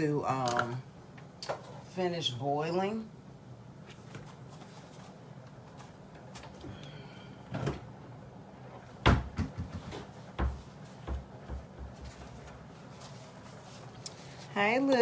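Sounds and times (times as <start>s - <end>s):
cabinet door opening and closing: 8.9s - 12.0s.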